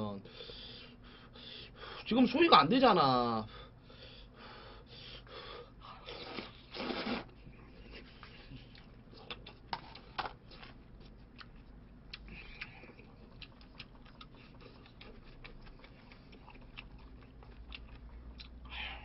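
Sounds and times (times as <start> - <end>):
chewing mouth noises: 6.0 - 18.8.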